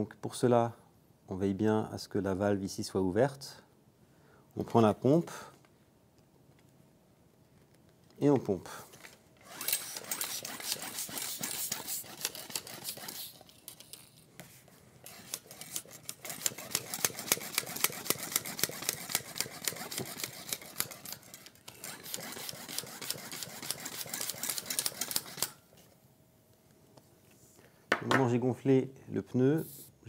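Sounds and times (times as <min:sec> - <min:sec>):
hand bicycle pump pumping: 0:09.4 - 0:14.1, 0:15.0 - 0:25.6.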